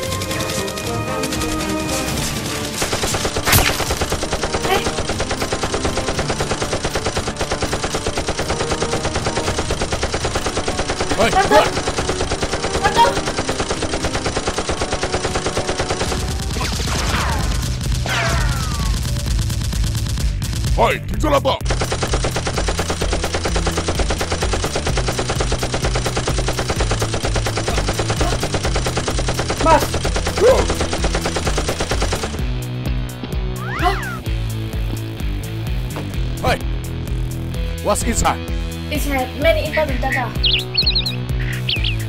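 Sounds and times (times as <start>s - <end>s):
automatic gunfire sound effects: 0.0s - 20.8s, 21.7s - 32.5s.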